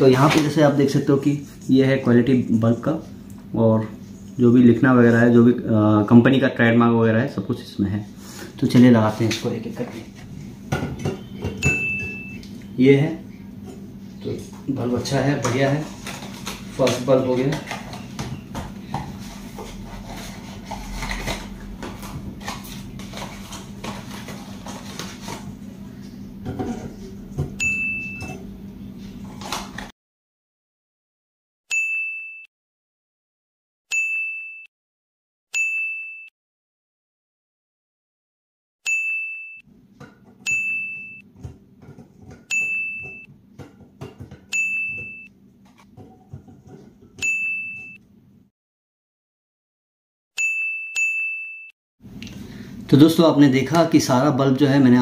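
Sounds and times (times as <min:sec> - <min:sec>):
bright ding chime: 0:11.6 - 0:12.4, 0:27.6 - 0:28.4, 0:38.9 - 0:39.6, 0:40.5 - 0:41.2, 0:42.5 - 0:43.3, 0:47.2 - 0:48.0.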